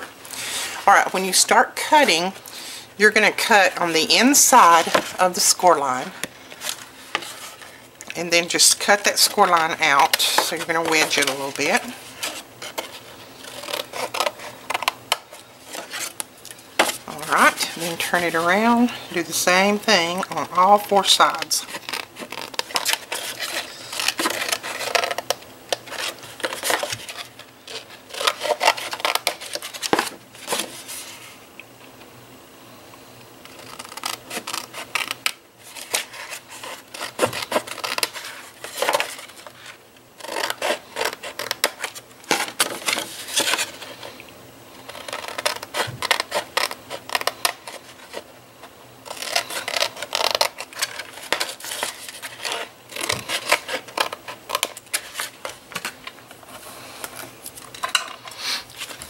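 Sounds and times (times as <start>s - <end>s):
paper rustling: 49.1s - 59.0s.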